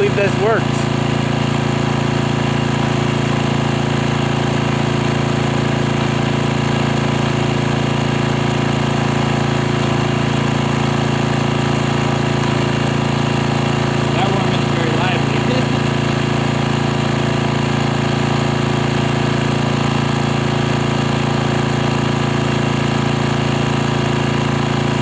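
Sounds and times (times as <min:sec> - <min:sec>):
portable generator engine running: 0:00.0 - 0:25.0.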